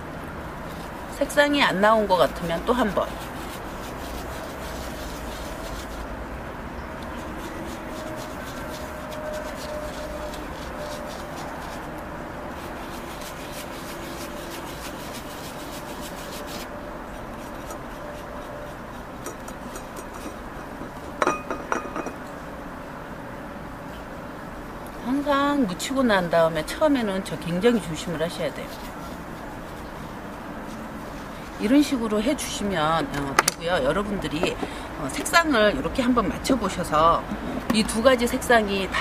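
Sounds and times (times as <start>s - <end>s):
brush rubbing on paper: 0.6s - 6.2s, 7.0s - 21.1s, 26.8s - 32.7s
brush clinking against plate: 17.4s - 22.4s.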